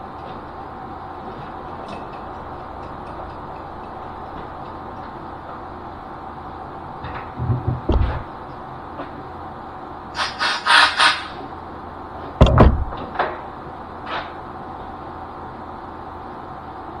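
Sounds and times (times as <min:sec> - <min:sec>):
machine hum: 0:00.0 - 0:12.1.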